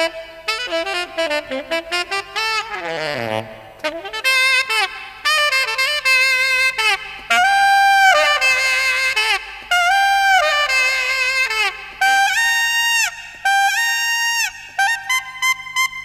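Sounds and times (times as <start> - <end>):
saxophone slow melody: 0.0 - 16.0.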